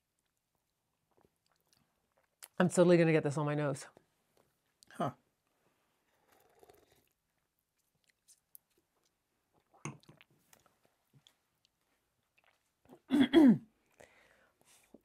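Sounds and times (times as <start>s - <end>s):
soft mouth sounds: 6.1s - 7.2s, 7.8s - 10.7s
sipping a slushy drink: 6.2s - 7.2s.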